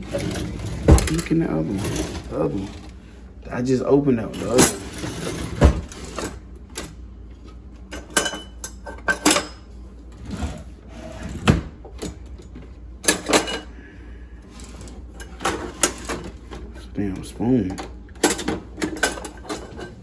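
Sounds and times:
wooden drawers knocking shut: 0.1s - 1.3s, 4.6s - 6.1s
metal utensils clattering: 4.3s - 6.4s, 7.9s - 9.6s, 13.0s - 13.7s, 14.6s - 16.6s, 17.7s - 20.0s.

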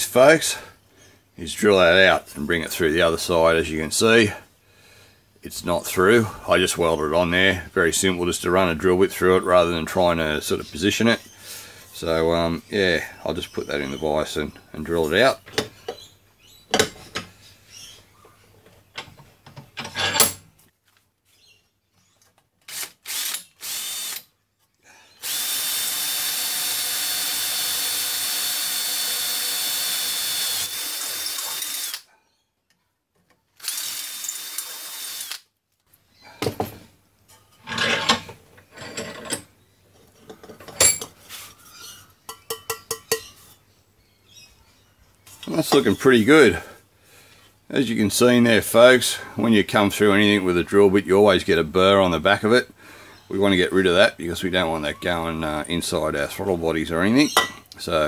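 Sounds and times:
cordless drill whining through metal: 22.7s - 24.3s, 25.2s - 32.1s, 33.6s - 35.5s.

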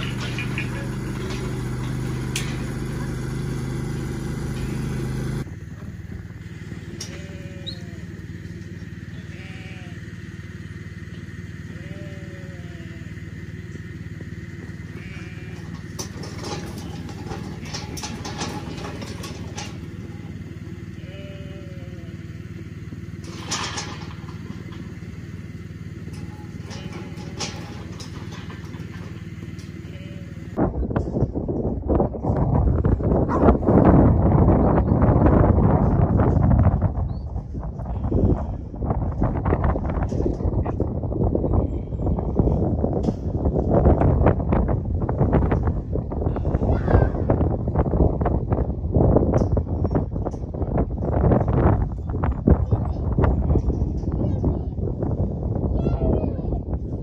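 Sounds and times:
clicks and knocks: 0.0s - 2.8s, 26.1s - 29.8s
low engine-like hum: 0.0s - 57.0s
sheep bleating: 6.9s - 8.2s, 9.1s - 10.1s, 11.7s - 13.1s, 14.9s - 15.8s, 21.0s - 22.3s, 29.8s - 30.6s.

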